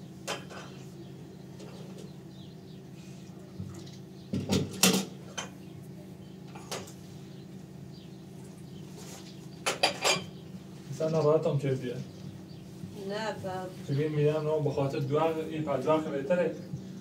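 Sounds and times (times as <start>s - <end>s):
steady low hum: 0.0s - 17.0s
glasses clinking on a metal tray: 9.7s - 10.3s.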